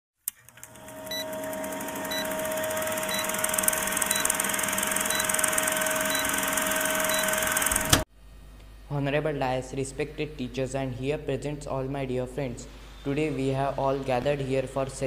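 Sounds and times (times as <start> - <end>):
film projector running: 0.3 - 8.0.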